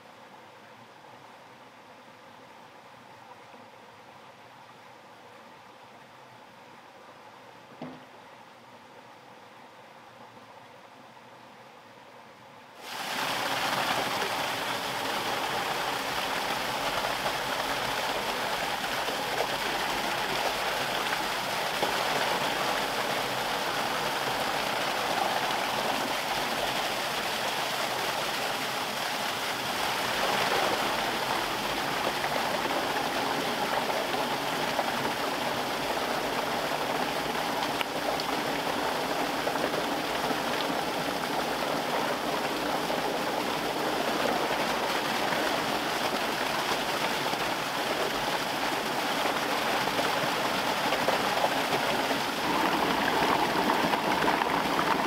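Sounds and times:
water gushing into a pit: 0:12.8 - 0:55.0.

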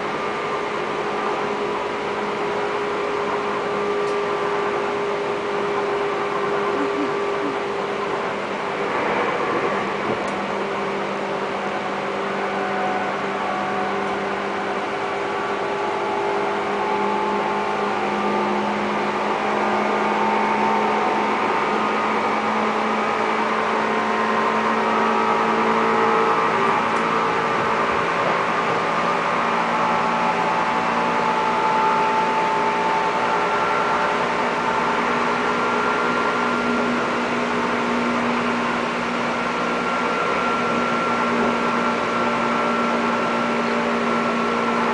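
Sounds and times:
train motor hum: 0:00.0 - 0:44.9.

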